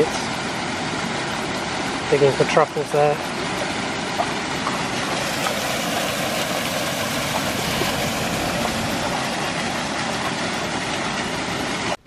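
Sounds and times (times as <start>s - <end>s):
river rushing over stones: 3.2s - 12.0s.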